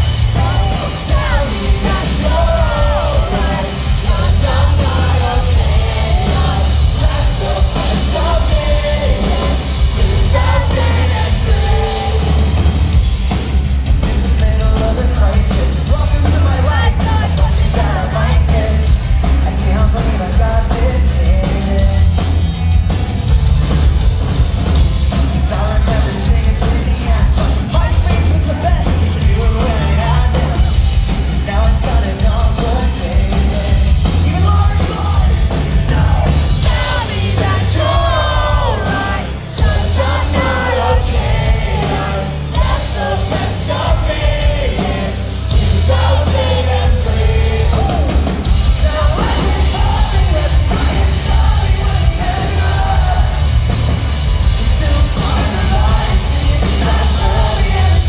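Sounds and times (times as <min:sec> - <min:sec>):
crowd yelling along: 0:00.0 - 0:58.0
live pop-punk band playing: 0:00.0 - 0:58.0.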